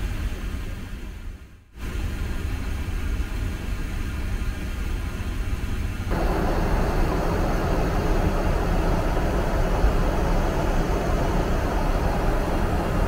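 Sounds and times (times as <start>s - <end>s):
airplane cabin noise: 6.1s - 13.0s.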